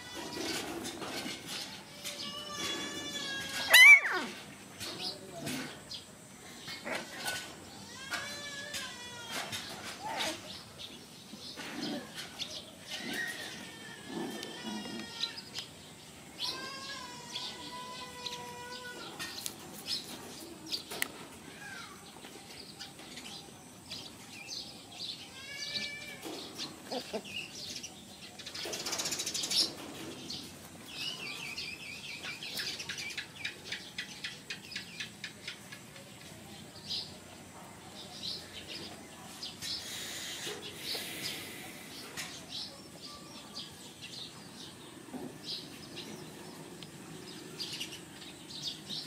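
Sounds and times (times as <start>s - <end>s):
rustle: 0.0s - 49.0s
puppies whining and squeaking: 11.7s - 15.4s.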